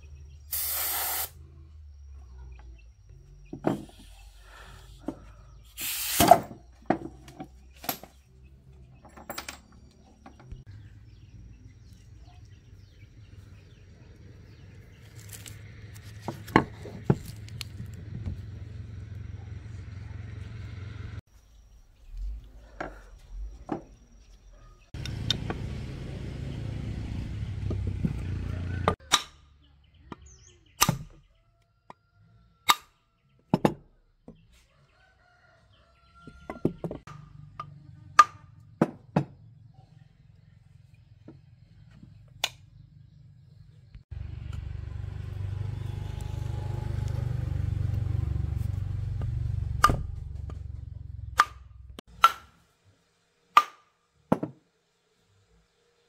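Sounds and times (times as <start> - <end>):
metal parts clicking and knocking: 9.0 - 10.5.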